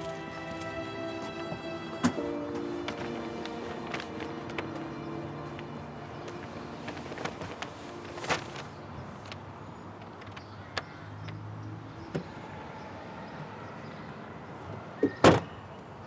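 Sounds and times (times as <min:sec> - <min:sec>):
paper bag rustling: 0:00.0 - 0:09.5.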